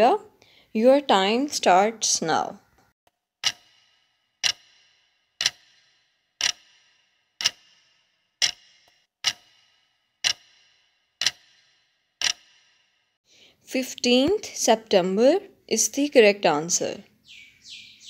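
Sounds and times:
clock ticks with ringing tail: 3.4s - 13.2s.

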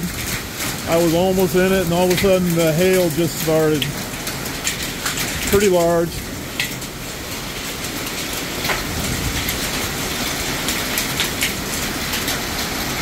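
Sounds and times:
hailstones striking hard surfaces: 0.0s - 13.0s
heavy rain pouring: 0.0s - 13.0s.

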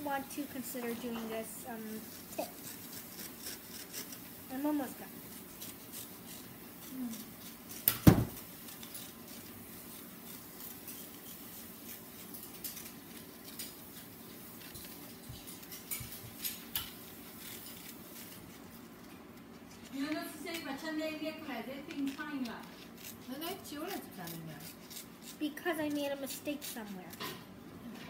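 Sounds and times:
scissors snipping paper: 0.8s - 27.4s
sharp knock: 7.9s - 8.4s.

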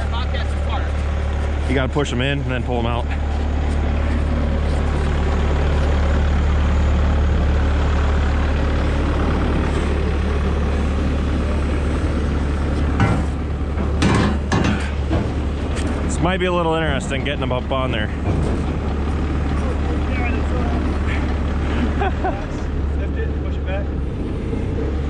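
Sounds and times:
heavy engine idling: 0.0s - 25.0s
sharp knocks: 13.0s - 15.5s.

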